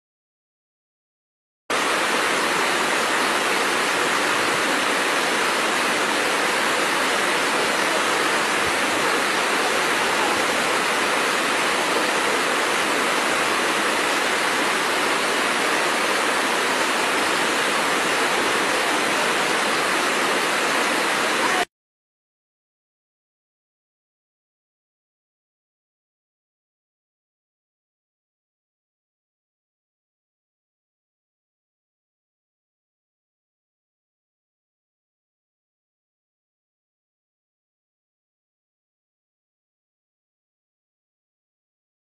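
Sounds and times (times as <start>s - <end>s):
waterfall rushing over rocks: 1.7s - 21.7s.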